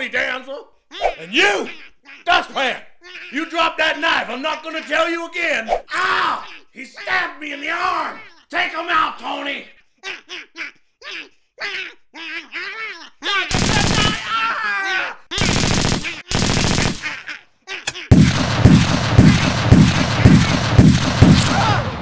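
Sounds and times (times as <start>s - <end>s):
sci-fi gun firing: 13.5s - 14.2s, 15.4s - 17.2s, 17.9s - 22.0s
short voice sounds: 17.1s - 18.1s.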